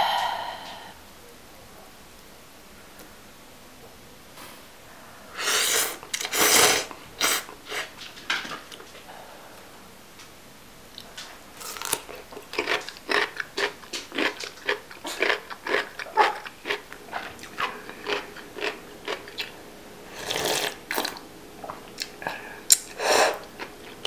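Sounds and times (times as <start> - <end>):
crunching radish kimchi: 11.0 - 24.0.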